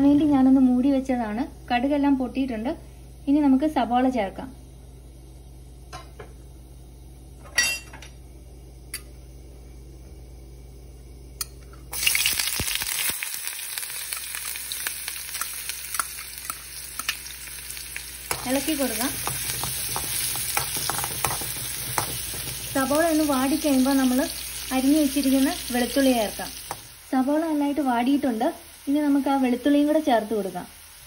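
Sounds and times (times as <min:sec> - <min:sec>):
mustard seeds popping in oil: 0:11.4 - 0:27.0
onion sizzling in hot oil: 0:11.9 - 0:31.0
spoon stirring: 0:18.3 - 0:23.2.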